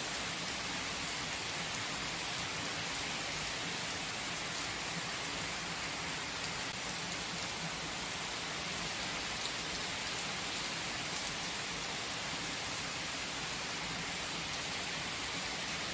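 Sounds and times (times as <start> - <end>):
steady rain hiss: 0.0 - 15.9.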